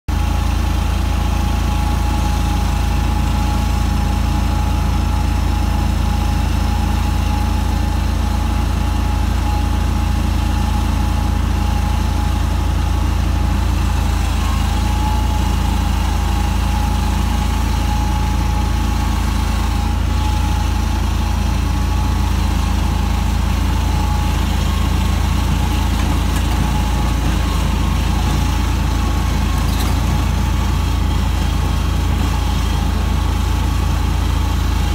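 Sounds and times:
mower engine running: 0:00.1 - 0:34.9.

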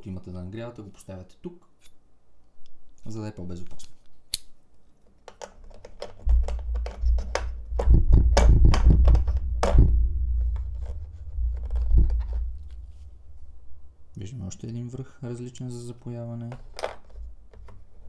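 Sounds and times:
deep rumble: 0:06.2 - 0:14.4
small parts clicking in plastic case: 0:16.4 - 0:17.9.

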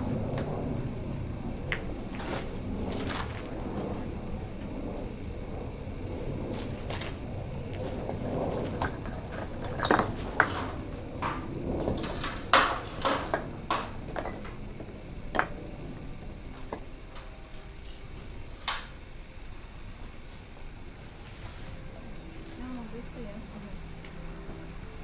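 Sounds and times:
metal tools and stones knocking: 0:08.8 - 0:10.7.

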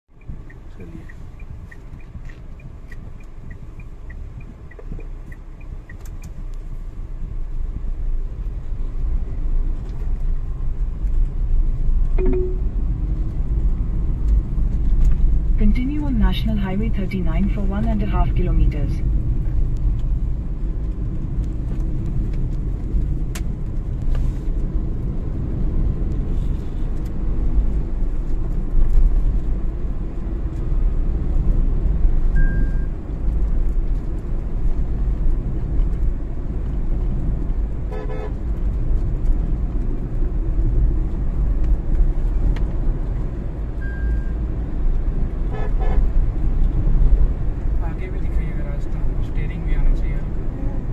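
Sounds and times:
car engine and road noise: 0:00.1 - 0:50.9
car horn toot: 0:37.9 - 0:38.4, 0:45.5 - 0:46.1.

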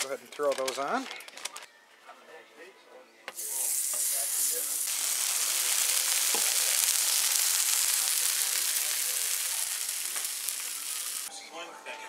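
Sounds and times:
food sizzling on a griddle: 0:03.4 - 0:11.3.

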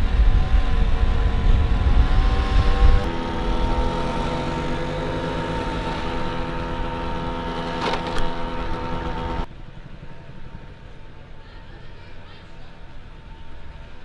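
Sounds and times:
motor scooter engine running: 0:00.0 - 0:09.5
outdoor background noise: 0:00.0 - 0:14.0.

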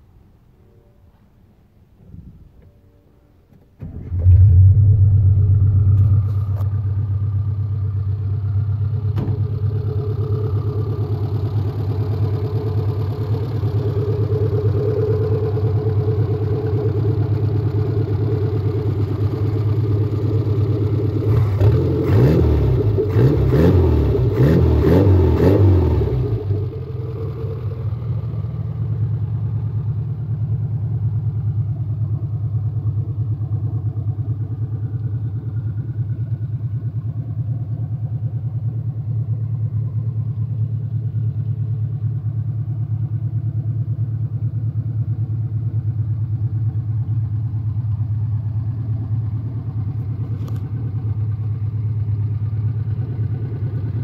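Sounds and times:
car engine starting and idling: 0:01.9 - 0:54.0
engine revving: 0:21.2 - 0:27.6.

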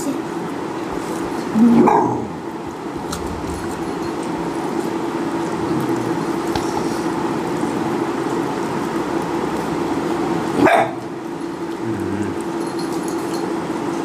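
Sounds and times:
background hum: 0:00.8 - 0:13.2
dog barking: 0:10.6 - 0:11.1.

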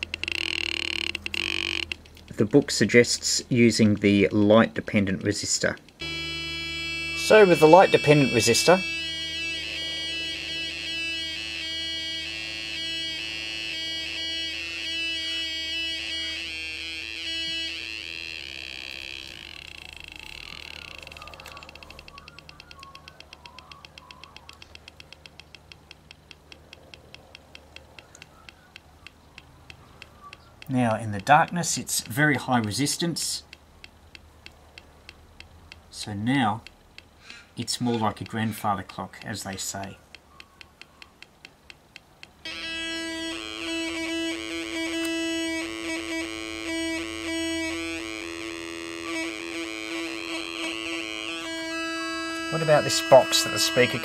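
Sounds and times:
steady electronic tone: 0:00.0 - 0:02.0, 0:06.0 - 0:22.3, 0:42.4 - 0:54.0
speaker clicking ticks: 0:00.0 - 0:42.5
warbling electronic pulses: 0:06.0 - 0:23.0.

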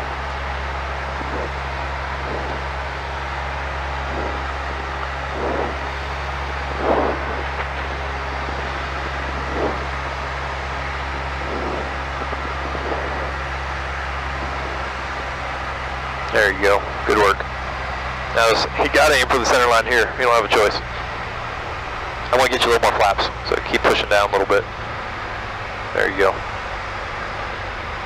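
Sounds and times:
light aircraft engine drone: 0:00.0 - 0:28.0.

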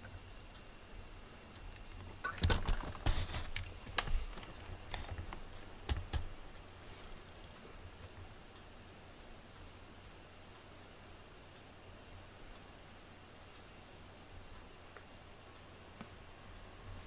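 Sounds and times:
light irregular clicks: 0:01.5 - 0:06.7, 0:14.4 - 0:16.8.

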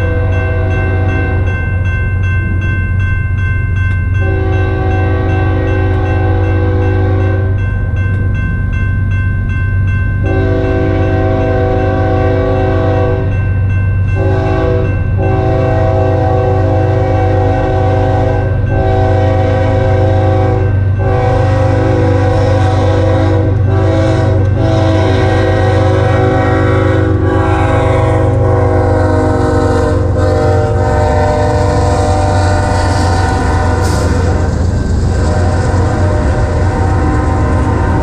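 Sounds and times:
locomotive air horn blasts: 0:00.0 - 0:01.5, 0:04.2 - 0:07.6, 0:10.2 - 0:13.3, 0:14.2 - 0:38.0
crossing bell ringing: 0:00.0 - 0:38.0
low rumble: 0:31.6 - 0:38.0.

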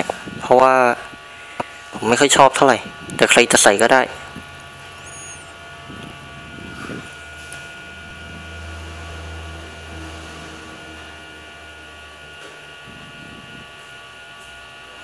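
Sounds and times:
electrical hum and hiss: 0:00.0 - 0:15.0
low drone: 0:02.8 - 0:13.8.

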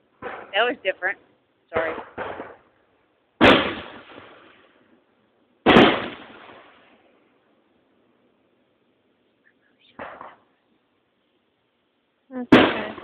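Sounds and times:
firework shells bursting: 0:00.0 - 0:00.9, 0:01.7 - 0:07.3, 0:09.8 - 0:10.8.

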